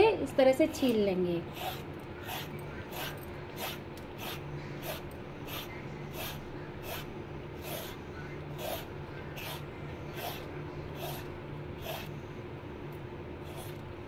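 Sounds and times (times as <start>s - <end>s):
vegetable peeler rasping: 1.5s - 12.2s, 13.4s - 13.9s.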